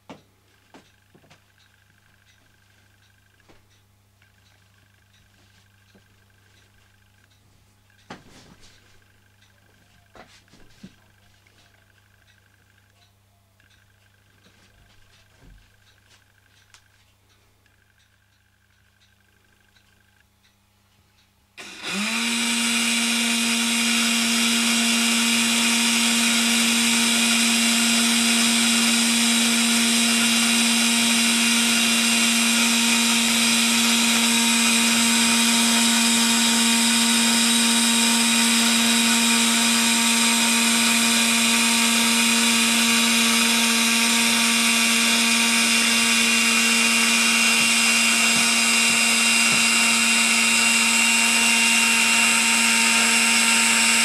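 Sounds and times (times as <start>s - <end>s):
electric motor hum: 21.6s - 54.0s.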